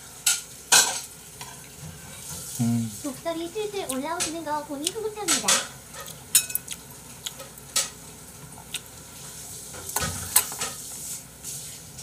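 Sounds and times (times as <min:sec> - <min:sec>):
spoon clicking and scraping in bowl: 0:05.3 - 0:06.8.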